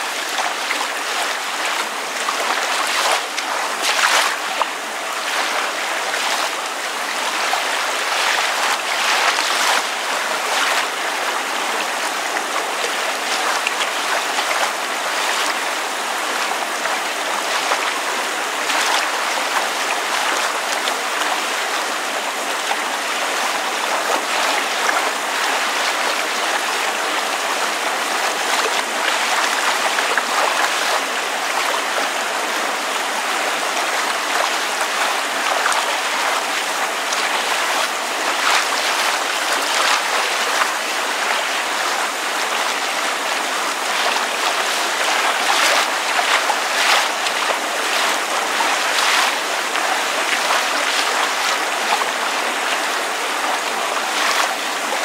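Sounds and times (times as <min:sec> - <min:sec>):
water lapping and splashing: 0:00.0 - 0:55.0
small splashes and drips: 0:00.3 - 0:10.9, 0:33.7 - 0:55.0
rain falling: 0:12.8 - 0:55.0.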